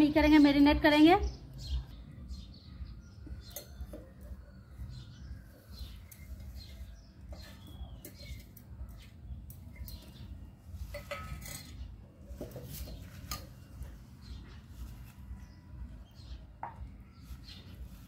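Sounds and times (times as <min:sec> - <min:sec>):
steel plate and jar clinking: 0:03.4 - 0:04.0, 0:09.7 - 0:12.0.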